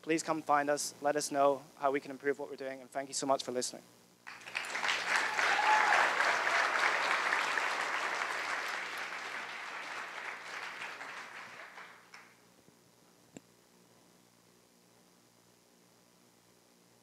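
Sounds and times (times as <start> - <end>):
audience applause: 4.3 - 12.3.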